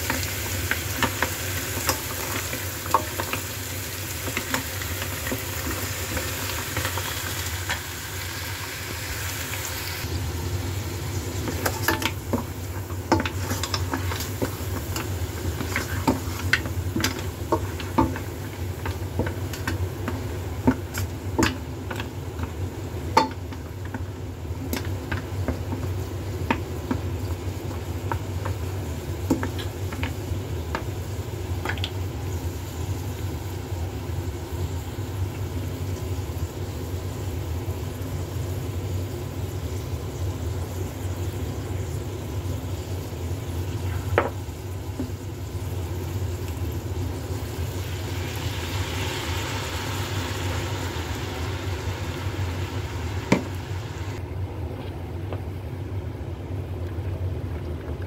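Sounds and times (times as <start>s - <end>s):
steady sizzle: 0.0s - 54.3s
mussel shells scraping in a wok: 11.0s - 20.2s.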